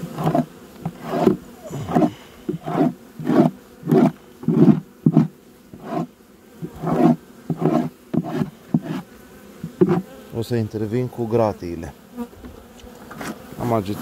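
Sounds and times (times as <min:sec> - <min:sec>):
gloved hand scraping wooden floor: 0:00.0 - 0:10.2.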